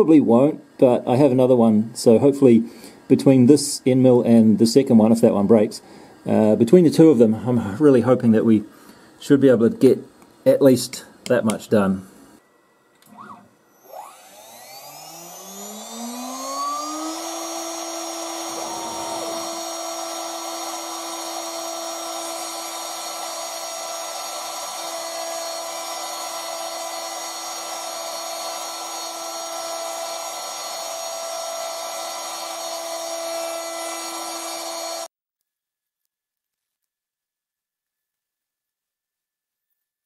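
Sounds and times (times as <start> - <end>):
router spindle whining: 13.0 - 35.1
cooling air hiss: 17.2 - 21.5.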